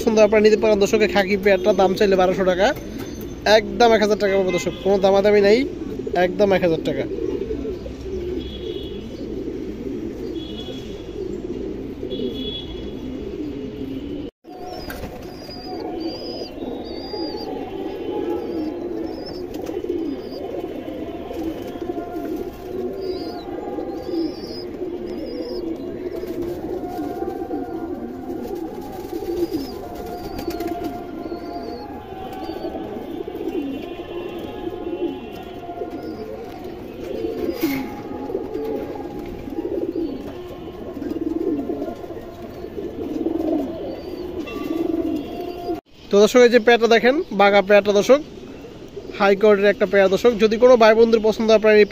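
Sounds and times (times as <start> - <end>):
pigeons cooing: 0.0 - 45.9, 47.9 - 51.9.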